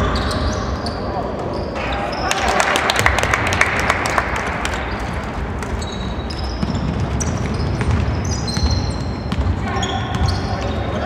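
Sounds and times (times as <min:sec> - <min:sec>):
sneaker squeaks: 0:00.0 - 0:02.3, 0:04.9 - 0:11.0
basketball bouncing on hardwood: 0:06.6 - 0:10.4.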